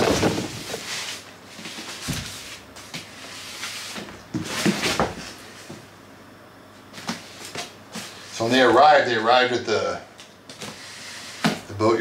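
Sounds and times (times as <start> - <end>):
cardboard rustling and scraping: 0.0 - 5.8.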